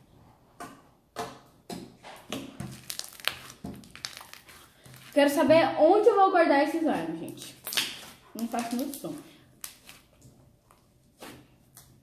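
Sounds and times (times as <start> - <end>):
slime kneaded clicking and crackling: 2.3 - 5.2, 7.2 - 12.0.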